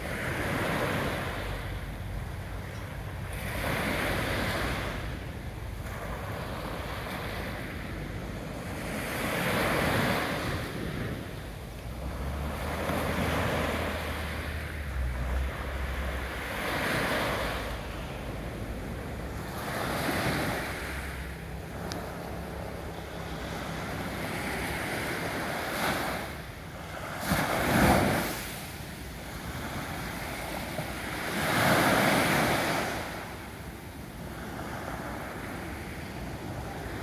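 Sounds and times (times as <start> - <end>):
small waves washing up a beach: 0.0 - 37.0.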